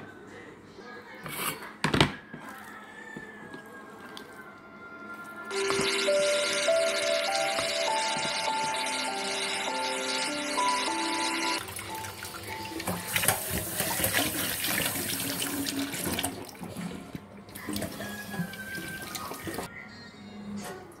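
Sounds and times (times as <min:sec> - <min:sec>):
tap water pouring into steel bowl: 0:11.6 - 0:16.9
water splashing: 0:11.6 - 0:19.7.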